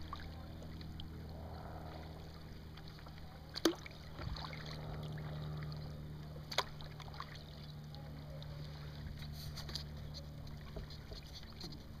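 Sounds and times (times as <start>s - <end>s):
light water splashes: 0.0s - 12.0s
paddle blades dipping and dripping: 0.0s - 12.0s
steady low hum: 0.0s - 12.0s.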